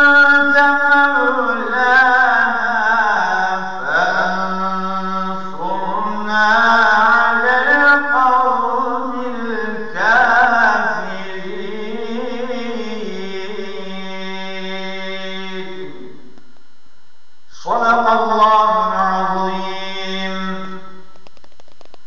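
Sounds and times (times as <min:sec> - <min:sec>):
man chanting melodically: 0:00.0 - 0:16.4, 0:17.5 - 0:21.2.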